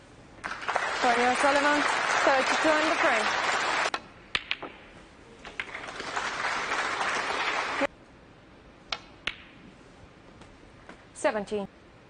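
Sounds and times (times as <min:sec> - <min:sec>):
audience applauding: 0:00.4 - 0:04.0, 0:05.5 - 0:07.9
snooker balls clicking: 0:03.9 - 0:06.1, 0:08.9 - 0:09.6.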